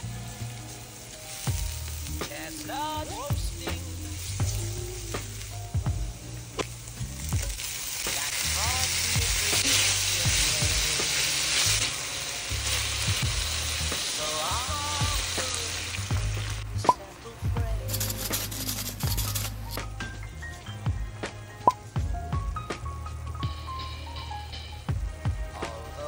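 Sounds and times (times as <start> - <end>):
oil sizzling in a pan: 0.0 - 19.8.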